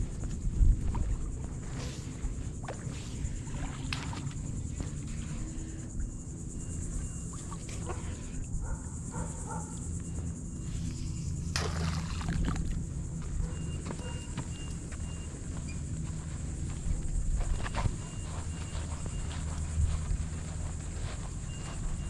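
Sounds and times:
wind rumbling on microphone: 0.0 - 9.6, 10.4 - 13.8, 14.5 - 22.0
net splashing into water: 11.5 - 12.8.

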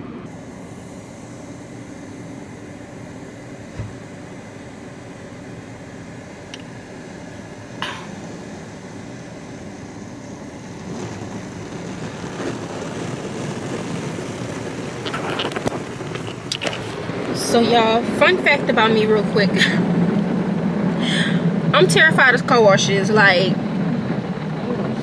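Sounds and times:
water spray and machinery muffled: 0.0 - 25.0.

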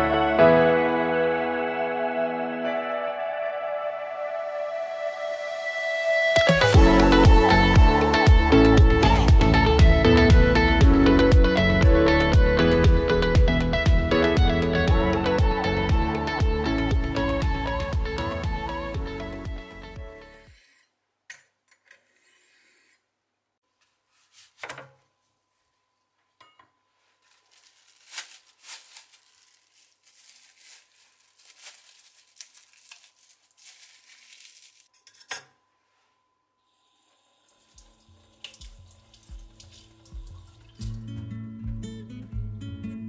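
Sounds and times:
cling film crinkling: 27.1 - 35.0
tap running water: 36.8 - 41.1
guitar music: 40.8 - 43.0.

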